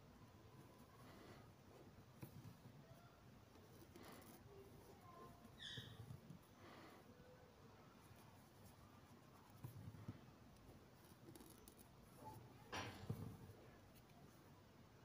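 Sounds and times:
thread rasping through fabric: 3.4s - 6.5s, 8.4s - 14.2s.

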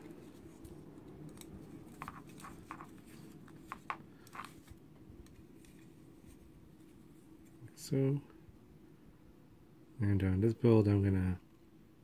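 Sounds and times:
low room hum: 0.0s - 12.0s
clicks and taps handling frame: 0.6s - 5.9s.

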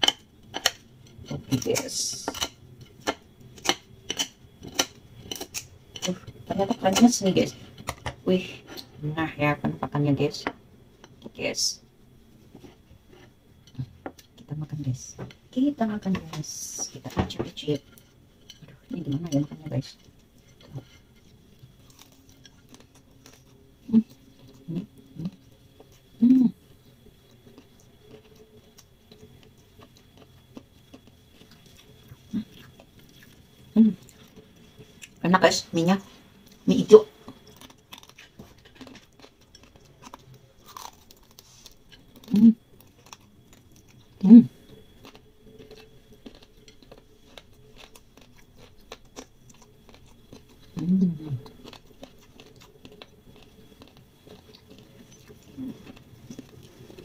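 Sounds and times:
crispy noodles being chewed: 17.8s - 35.2s, 36.2s - 57.0s
person humming: 26.2s - 26.6s, 50.8s - 51.5s.

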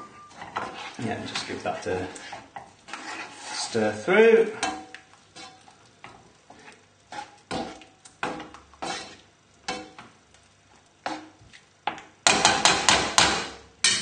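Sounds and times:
utensil scraping frying pan: 0.0s - 10.2s, 11.0s - 11.6s.

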